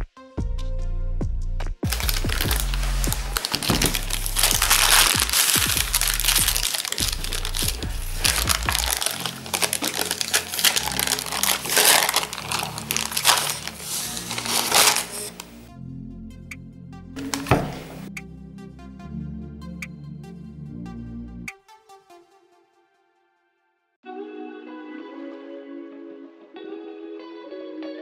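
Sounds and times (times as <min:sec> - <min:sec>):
background music: 0:00.0 - 0:28.0
baking parchment crinkling: 0:01.9 - 0:15.7, 0:17.2 - 0:18.1.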